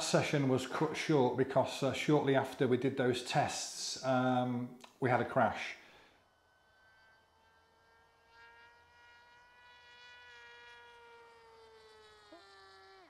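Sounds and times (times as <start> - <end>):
electric motor and propeller whining: 6.0 - 13.0.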